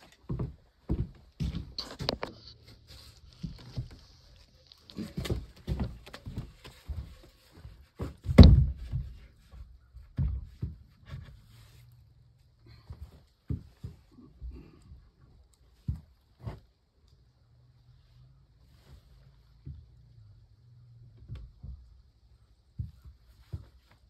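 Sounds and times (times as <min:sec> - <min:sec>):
irregular knocks and thumps: 0:08.0 - 0:11.4, 0:19.6 - 0:24.0.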